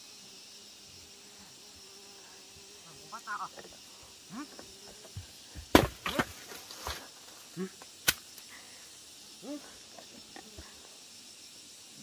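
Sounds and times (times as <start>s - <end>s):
high insect drone: 0.0s - 12.0s
sharp knocks: 5.6s - 6.4s.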